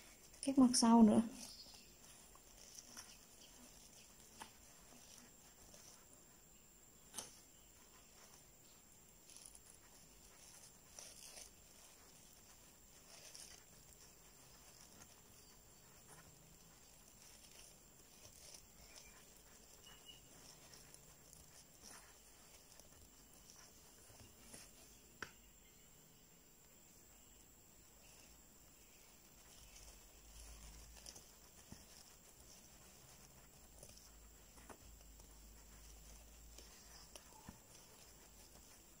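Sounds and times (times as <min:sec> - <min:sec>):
crochet hook ticking: 0:00.0 - 0:06.1, 0:09.2 - 0:25.4
yarn rustling through stitches: 0:00.0 - 0:39.0.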